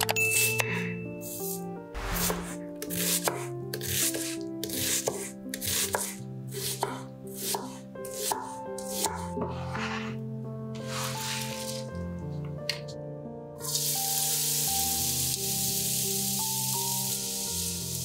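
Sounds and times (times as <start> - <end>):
knife dicing onion on board: 2.0 - 9.3.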